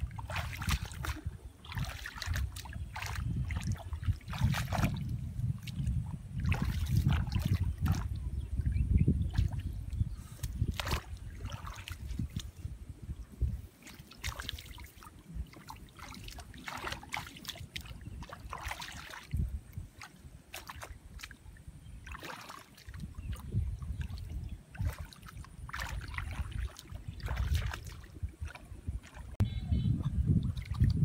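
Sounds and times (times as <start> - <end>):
water sloshing and splashing: 0.0 - 31.0.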